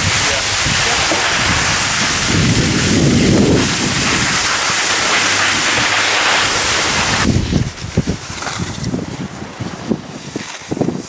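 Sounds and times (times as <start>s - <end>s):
skis sliding over snow: 0.0s - 11.0s
wind on microphone: 0.0s - 11.0s.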